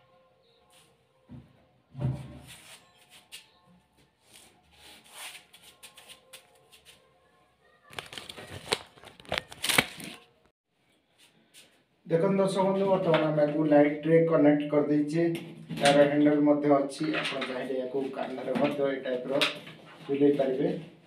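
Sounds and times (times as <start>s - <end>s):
camera handling rustles and clicks: 7.9s - 10.2s.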